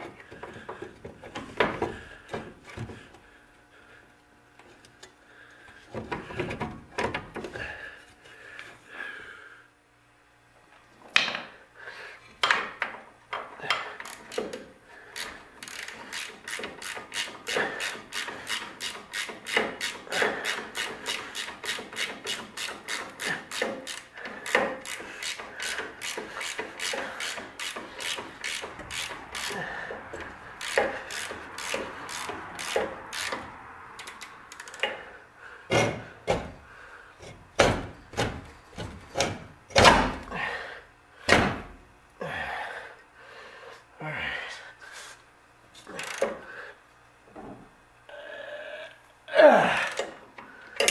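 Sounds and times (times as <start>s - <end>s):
ratchet wrench clicking: 14.0s - 14.6s, 15.2s - 34.9s, 46.0s - 46.4s.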